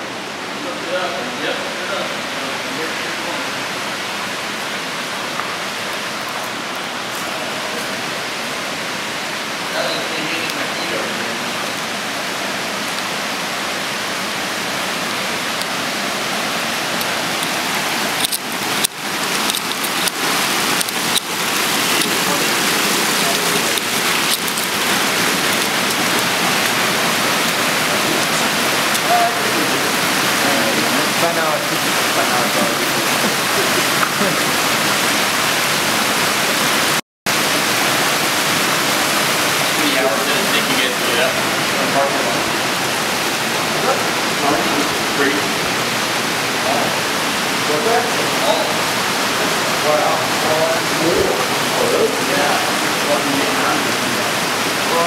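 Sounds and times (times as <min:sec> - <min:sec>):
creek water rushing over rocks: 0:00.0 - 0:55.0.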